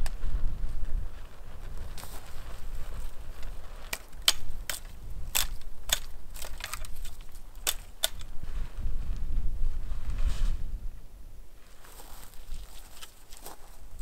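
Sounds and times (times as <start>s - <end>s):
wind rumble on microphone: 0.0s - 14.0s
dry twigs snapping: 1.9s - 8.4s, 12.2s - 14.0s.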